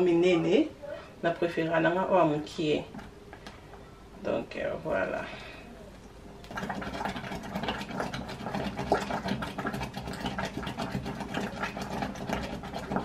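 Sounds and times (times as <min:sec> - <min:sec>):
steady low hum: 0:00.0 - 0:13.0
wooden spoon scraping steel pot: 0:06.5 - 0:13.0.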